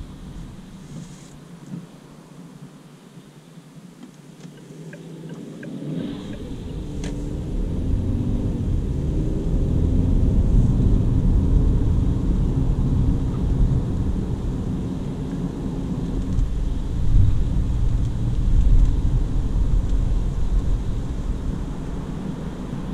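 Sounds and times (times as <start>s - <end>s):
car engine drone: 0.0s - 22.9s
tyre and road rumble: 4.0s - 22.9s.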